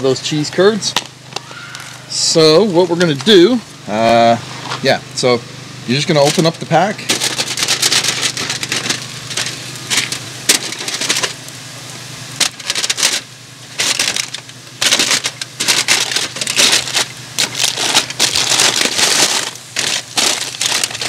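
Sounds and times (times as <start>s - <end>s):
steady low hum: 0.0s - 21.0s
foil crinkling and tearing: 5.9s - 11.6s, 12.4s - 21.0s.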